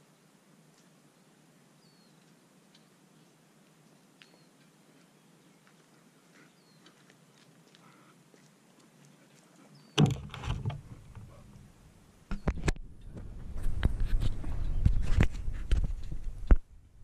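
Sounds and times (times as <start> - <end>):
rubbing on camera housing: 13.6 - 16.3.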